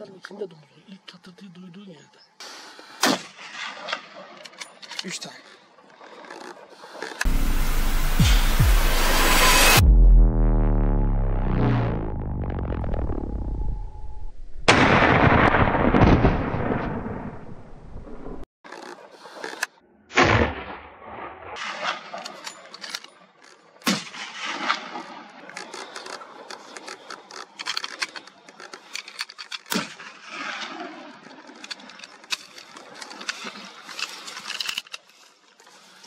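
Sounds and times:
gunshot: 0:03.0 - 0:04.0, 0:14.7 - 0:17.4, 0:20.1 - 0:22.2, 0:23.8 - 0:25.0.

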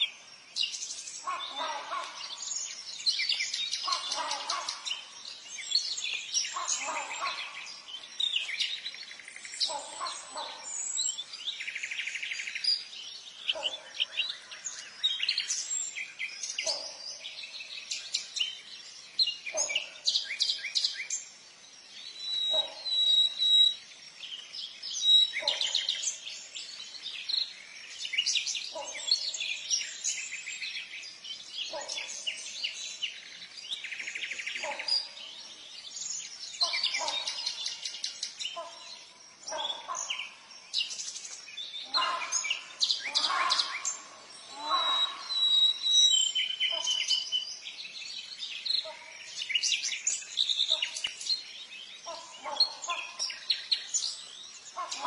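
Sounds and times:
small birds chirping: 0:00.0 - 0:55.0
lower bird call: 0:41.8 - 0:47.3.

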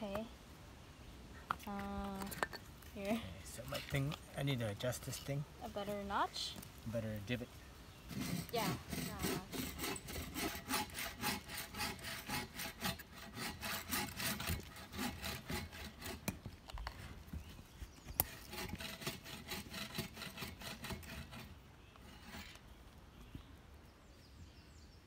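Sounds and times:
wooden spindle rubbing: 0:08.1 - 0:17.2, 0:18.2 - 0:22.6.

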